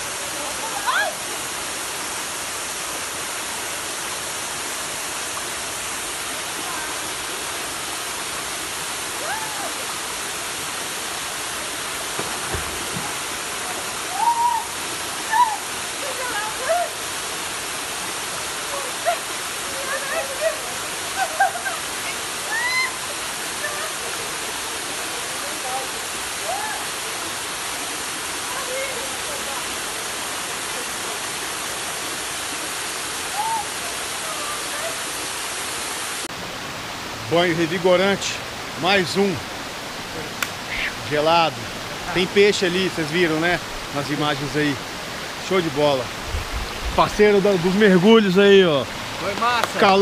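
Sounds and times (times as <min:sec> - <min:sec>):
waterfall rushing into pool: 0:00.0 - 0:50.0
person diving into water: 0:12.1 - 0:13.8.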